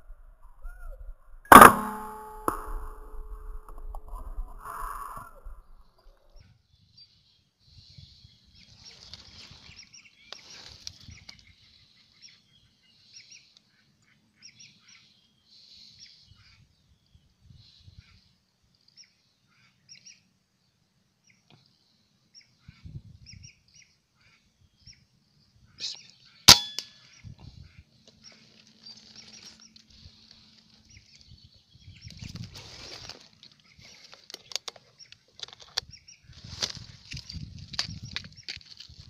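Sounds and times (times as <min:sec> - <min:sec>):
metallic ring: 0:01.5 - 0:04.0, 0:26.5 - 0:26.9.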